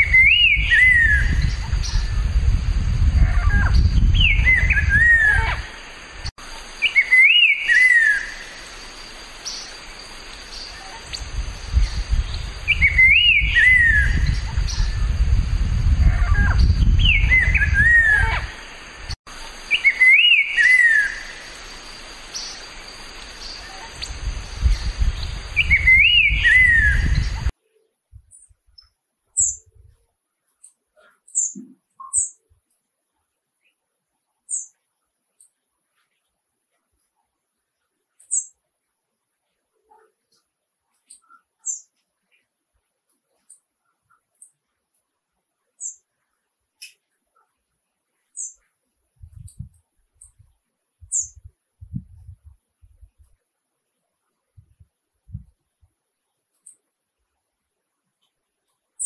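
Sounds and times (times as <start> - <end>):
bird whistled song: 0.0 - 2.3, 3.4 - 5.7, 6.8 - 8.5, 10.5 - 15.3, 16.4 - 18.6, 19.7 - 21.4, 23.4 - 27.5, 51.1 - 51.5.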